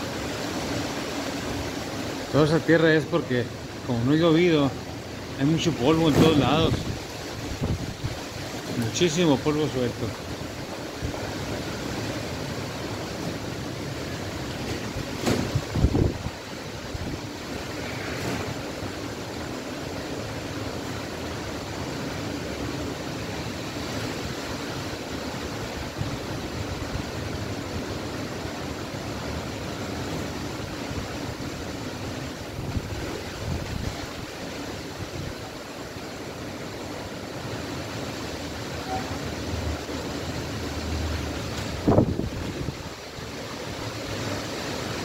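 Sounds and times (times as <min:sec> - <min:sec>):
strong wind through trees: 0:00.0 - 0:45.0
wind buffeting microphone: 0:06.2 - 0:08.4, 0:14.8 - 0:17.4, 0:41.6 - 0:43.0.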